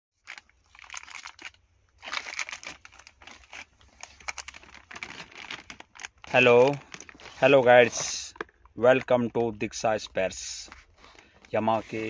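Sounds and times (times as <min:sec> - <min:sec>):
plastic bags and cardboard crinkling: 0:00.2 - 0:12.0.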